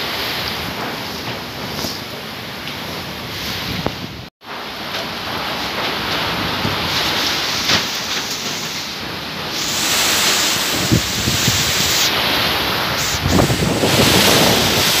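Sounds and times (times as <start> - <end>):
gusting wind: 0.0 - 15.0
heavy rain: 0.0 - 15.0
wind thumps on microphone: 9.8 - 15.0.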